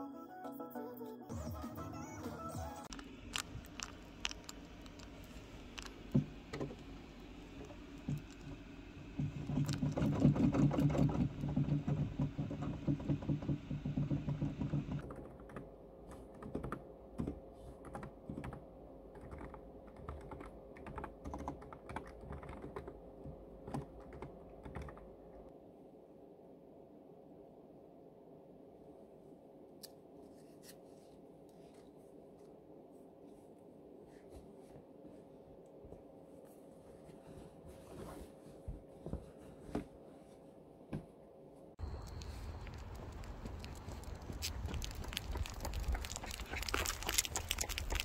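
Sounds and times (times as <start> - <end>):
typing on computer keyboard: 12.6 - 25.1.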